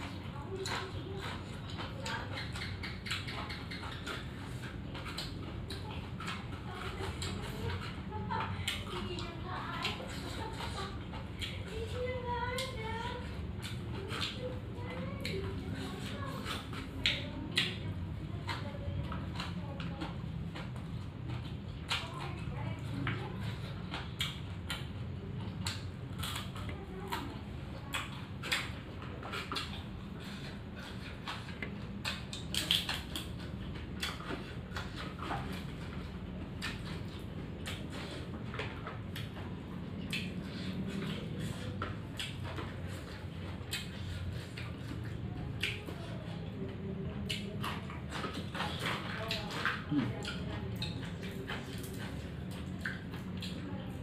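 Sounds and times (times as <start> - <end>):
fingers working food on plate: 0.0 - 54.0
person chewing and lip-smacking: 0.0 - 54.0.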